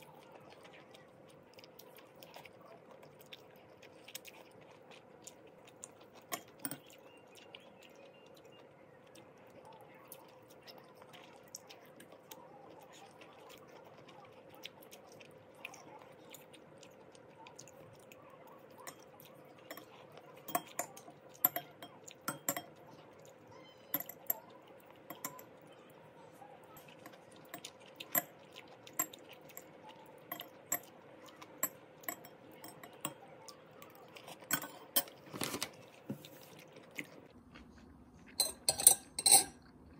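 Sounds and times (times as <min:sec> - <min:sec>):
quiet chewing: 0:00.0 - 0:39.9
utensils clinking on a glass bowl: 0:06.2 - 0:07.0, 0:18.8 - 0:23.0, 0:23.8 - 0:25.6, 0:26.8 - 0:35.8, 0:38.4 - 0:39.7.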